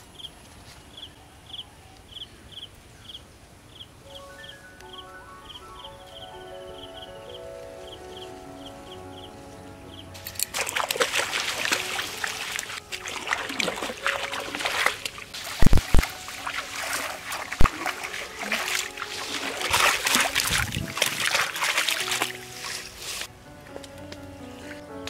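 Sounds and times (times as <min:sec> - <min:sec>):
water splashing and sloshing: 0:10.2 - 0:25.0.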